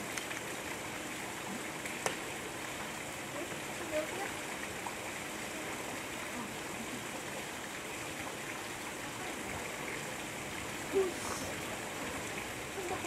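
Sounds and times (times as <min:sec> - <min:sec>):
water splashing into pool: 0:00.0 - 0:13.0.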